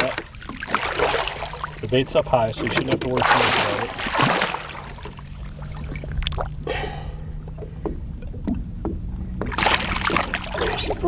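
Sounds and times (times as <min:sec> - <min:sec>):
fish thrashing in water: 0:00.0 - 0:07.1, 0:09.4 - 0:11.0
low steady hum: 0:00.0 - 0:11.0
water sloshing and splashing: 0:00.0 - 0:11.0.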